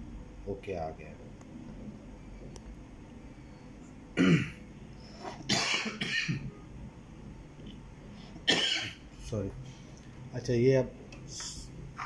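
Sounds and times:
man coughing: 4.2 - 4.6, 5.5 - 6.4, 8.5 - 9.0.

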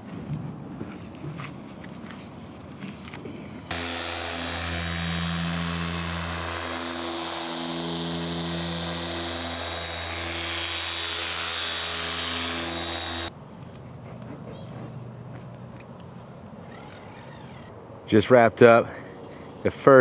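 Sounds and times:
polisher humming and whining: 3.7 - 13.3.

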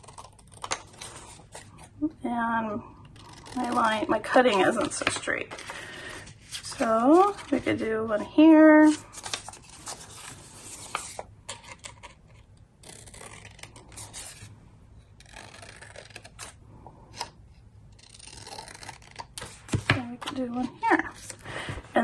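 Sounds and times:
paper rustling and rubbing: 3.3 - 12.2.

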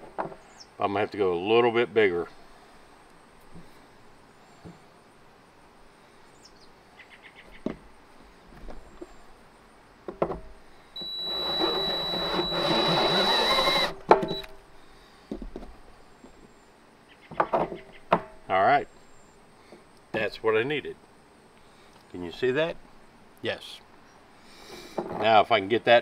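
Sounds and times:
cordless drill cutting plastic: 11.0 - 14.5.

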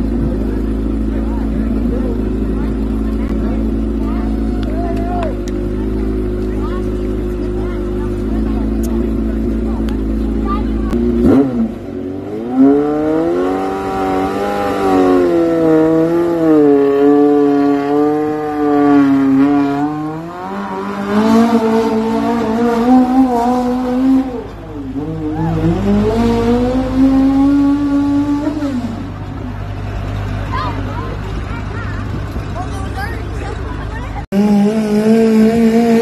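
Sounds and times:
tractor engine revving under load: 5.4 - 31.3, 34.2 - 36.0.

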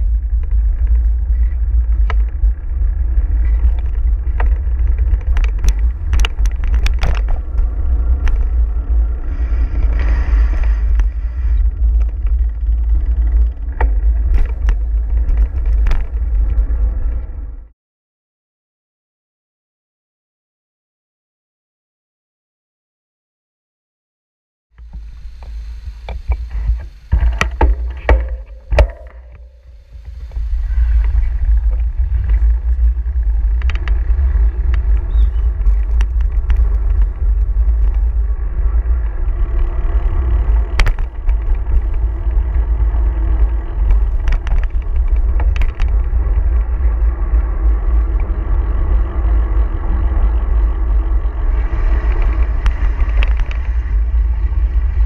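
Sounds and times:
motor traffic rushing: 0.0 - 17.6, 24.8 - 55.0
wind buffeting microphone: 0.0 - 17.7, 24.8 - 55.0
sharp knocks: 27.1 - 29.6.

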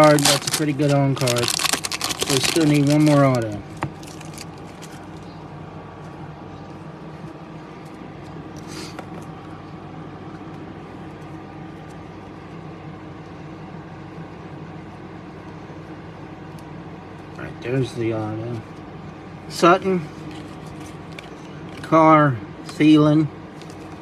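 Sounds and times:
trading cards rustling: 0.0 - 5.3
machine hum: 0.0 - 24.0.

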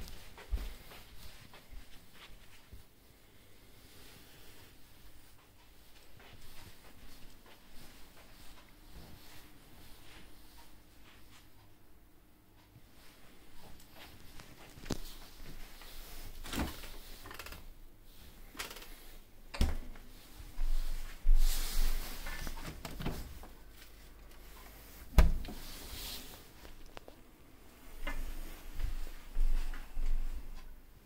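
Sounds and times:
rubbing and rustling: 12.9 - 27.3.

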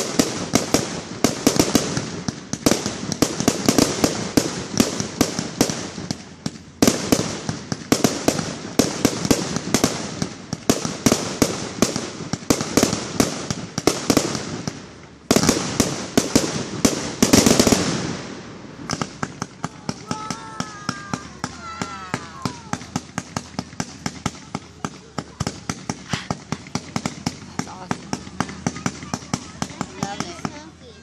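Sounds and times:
fireworks bangs and pops: 0.0 - 31.0.

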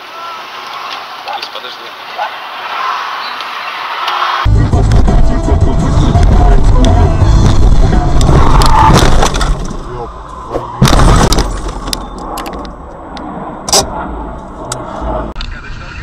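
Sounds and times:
car crash: 7.4 - 12.1.

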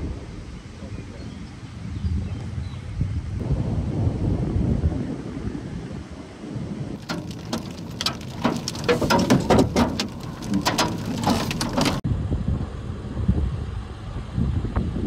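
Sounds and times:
wind buffeting microphone: 0.0 - 15.0
heavy raindrops tapping: 7.0 - 12.0.

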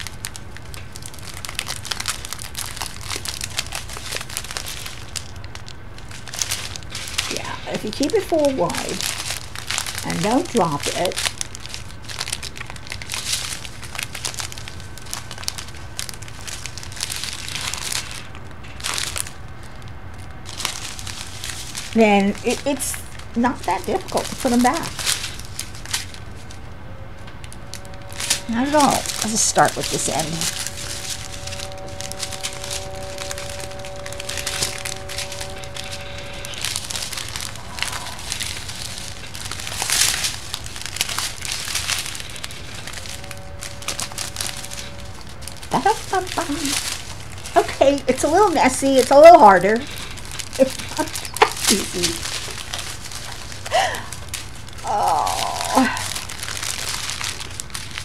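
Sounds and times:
plastic packets crinkling: 0.0 - 58.0.

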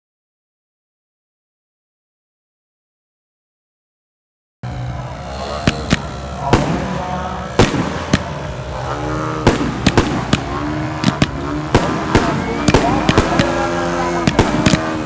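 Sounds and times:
gliding pitched tones: 4.6 - 15.0
steady low hum: 4.6 - 15.0
fireworks bangs: 4.7 - 15.0.

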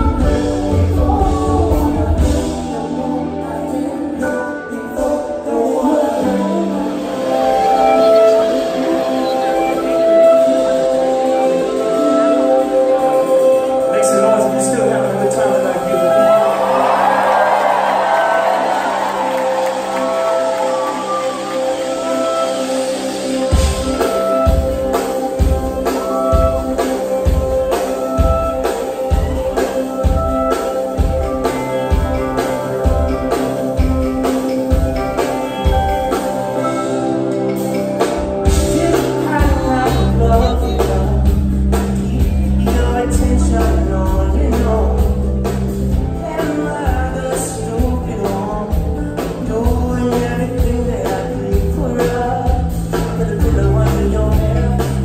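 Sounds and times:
male lead vocal: 0.0 - 9.0, 38.5 - 55.0
soul band playing live: 0.0 - 55.0.

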